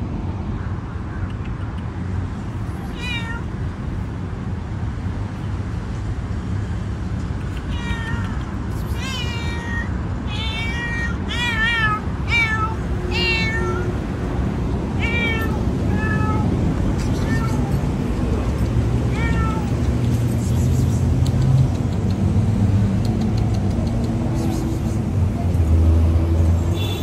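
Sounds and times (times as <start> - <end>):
cat meowing loudly: 2.6 - 3.5, 7.6 - 14.0, 15.0 - 18.0, 19.0 - 19.8.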